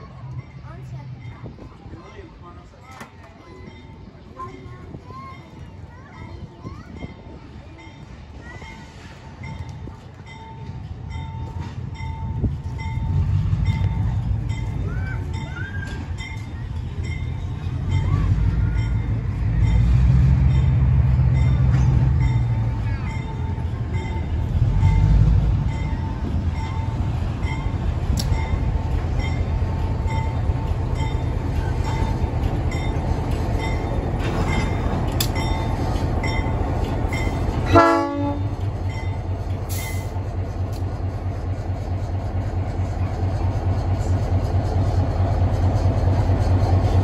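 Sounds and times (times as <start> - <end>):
diesel locomotive engine rumble: 0.0 - 47.0
locomotive bell dinging: 2.9 - 40.2
train horn blast: 37.6 - 38.6.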